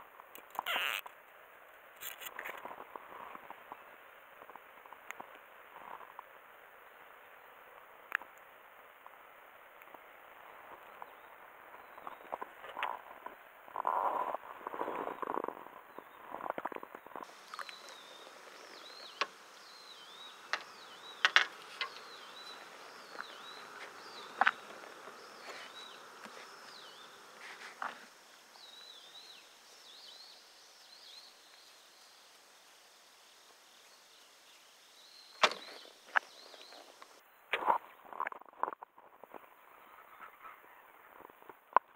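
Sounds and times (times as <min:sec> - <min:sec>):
high wavering chirps: 0:00.6 - 0:01.0.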